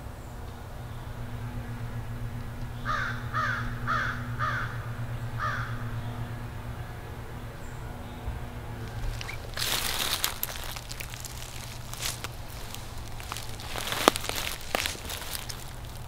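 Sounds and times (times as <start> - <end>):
steady low hum: 0.0 - 16.0
crow cawing: 2.8 - 5.9.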